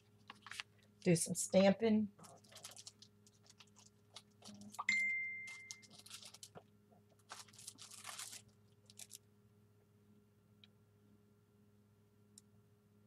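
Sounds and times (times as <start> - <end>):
craft supplies rustling and clicking: 0.2 - 0.7, 5.5 - 9.2
sharp ding: 4.9 - 5.7.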